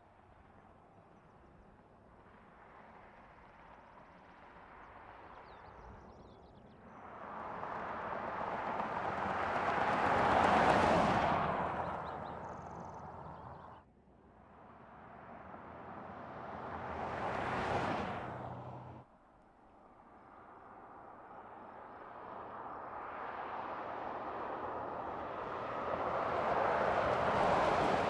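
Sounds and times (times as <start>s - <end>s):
car driving past: 7.0s - 13.8s, 14.9s - 19.0s.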